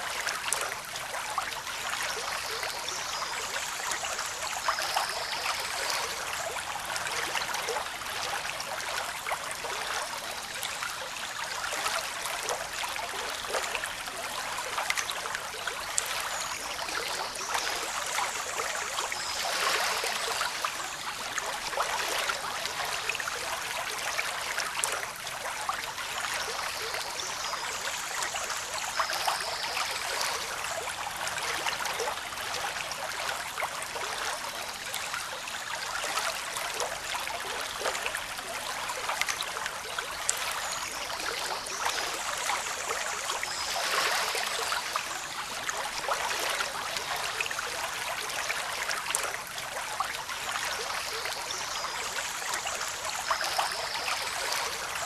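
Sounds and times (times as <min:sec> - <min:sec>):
stream babbling: 0:00.0 - 0:55.0.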